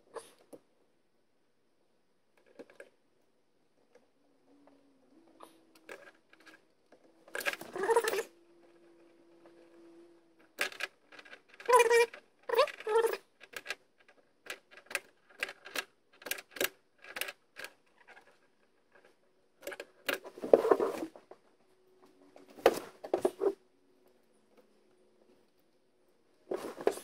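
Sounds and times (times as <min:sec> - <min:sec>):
rustle of handling: 0:20.1 - 0:27.0.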